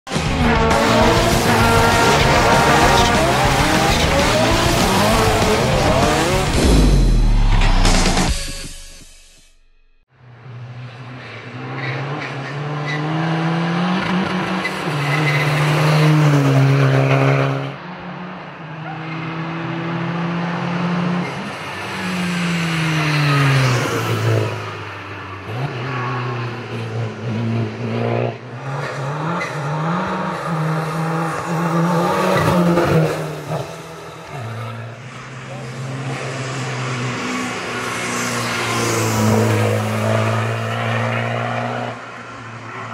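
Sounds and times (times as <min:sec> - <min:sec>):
race car engine shifting gears: 0:00.1 - 0:08.0.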